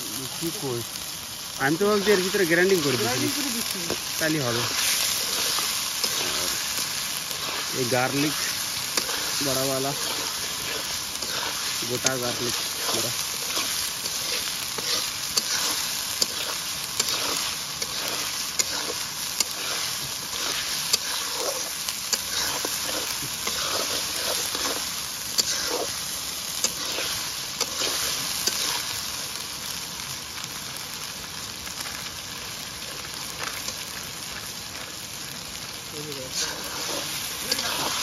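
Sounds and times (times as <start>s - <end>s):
curry sizzling in a pan: 0.0s - 38.0s
metal spatula scraping a pan: 1.9s - 29.0s, 36.3s - 38.0s.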